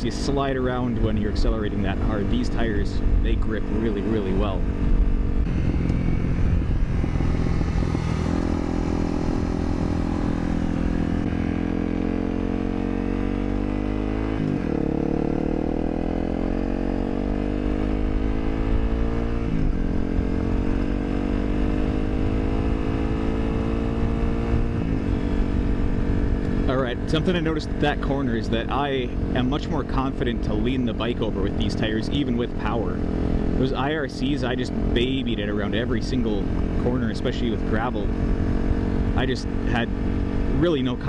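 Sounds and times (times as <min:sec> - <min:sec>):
motorcycle engine accelerating: 0:00.0 - 0:41.0
wind and road noise: 0:00.0 - 0:41.0.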